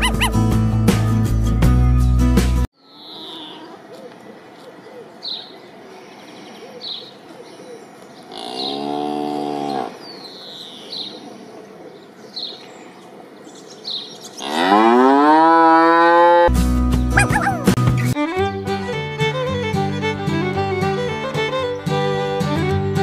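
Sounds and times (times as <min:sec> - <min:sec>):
cow mooing: 0:02.9 - 0:03.8, 0:08.3 - 0:10.0, 0:14.4 - 0:16.5.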